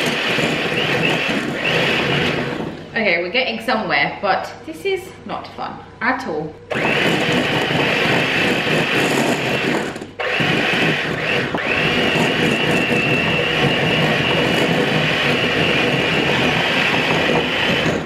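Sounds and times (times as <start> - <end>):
electric hand mixer in glass bowl: 0.0 - 2.9, 6.7 - 18.0.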